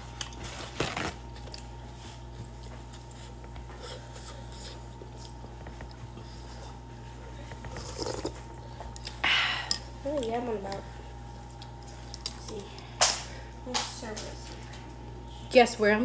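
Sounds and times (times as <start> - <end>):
low background hum: 0.0 - 16.0
quiet chewing: 1.3 - 12.9.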